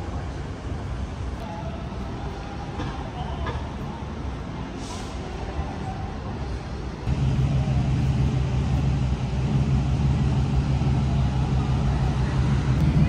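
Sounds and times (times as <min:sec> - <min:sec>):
street noise: 0:00.0 - 0:13.0
car engine idling: 0:07.1 - 0:13.0.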